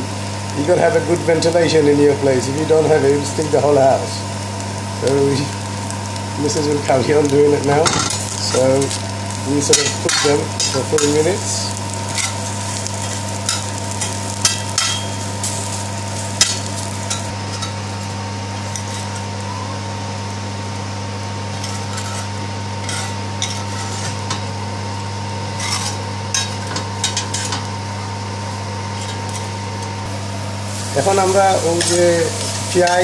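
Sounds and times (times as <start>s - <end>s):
steady low hum: 0.0s - 33.0s
metal spatula scraping a pan: 21.6s - 24.2s, 25.6s - 27.6s.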